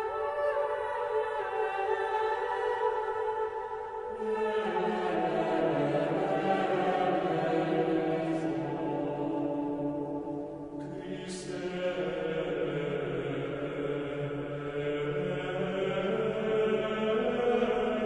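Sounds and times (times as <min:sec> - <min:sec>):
slow vocal chant: 0:00.0 - 0:18.0.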